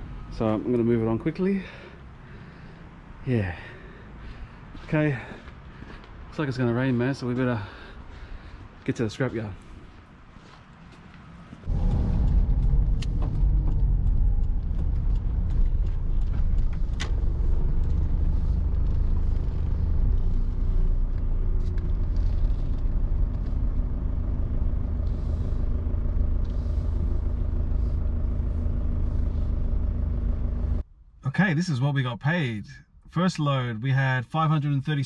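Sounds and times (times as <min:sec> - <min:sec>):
vehicle engine and road rumble: 0:00.0 - 0:35.0
sharp clicks and rattles: 0:11.7 - 0:20.4.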